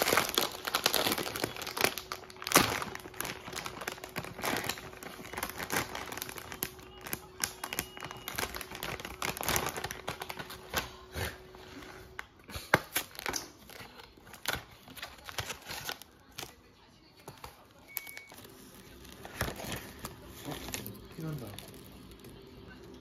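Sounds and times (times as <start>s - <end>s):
plastic snack packaging crinkling: 0.0s - 23.0s.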